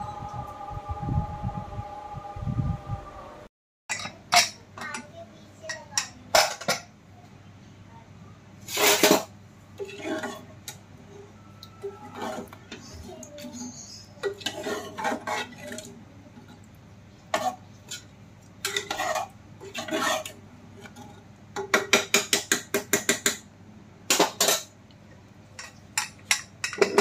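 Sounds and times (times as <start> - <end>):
metal spoon scraping a pot: 8.6 - 10.5, 11.8 - 15.9, 17.3 - 21.2.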